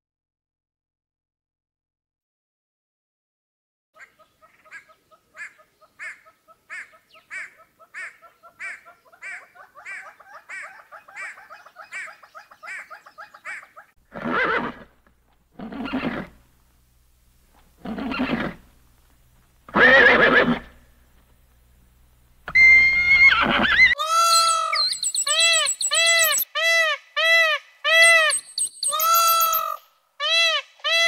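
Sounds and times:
animal calls: 22.5 - 31.0.

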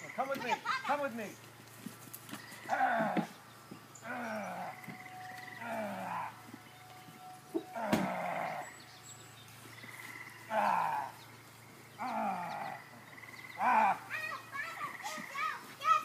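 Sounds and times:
animal calling deeply: 2.5 - 3.4, 4.0 - 9.0, 9.8 - 15.3.

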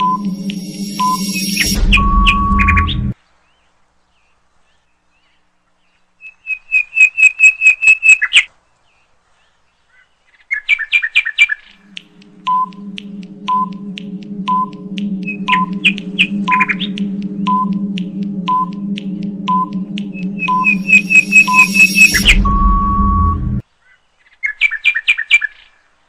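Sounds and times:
countdown timer ticking: 0.0 - 3.2, 11.7 - 23.6
steady low hum: 0.0 - 3.2, 11.7 - 23.6.

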